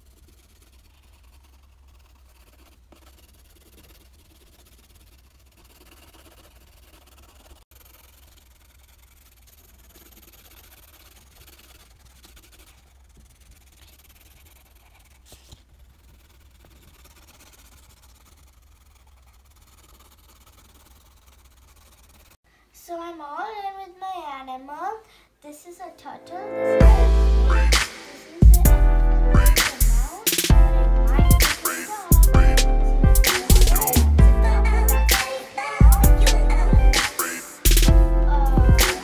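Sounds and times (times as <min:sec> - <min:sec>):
pencil scratching on paper: 0:00.0 - 0:22.4, 0:26.8 - 0:39.0
low hum: 0:26.5 - 0:27.8, 0:28.5 - 0:31.4, 0:32.2 - 0:35.1, 0:35.8 - 0:37.0, 0:37.8 - 0:38.8.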